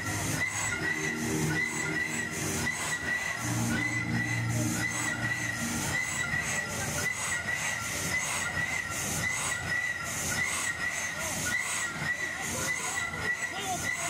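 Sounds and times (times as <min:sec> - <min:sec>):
low machinery rumble: 0:00.0 - 0:08.1
ride high-pitched squeal: 0:00.0 - 0:14.0.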